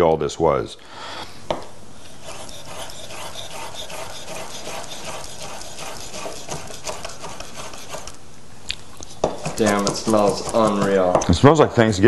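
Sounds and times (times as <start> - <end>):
knife chopping meat on wood: 4.4 - 8.0, 9.2 - 11.3.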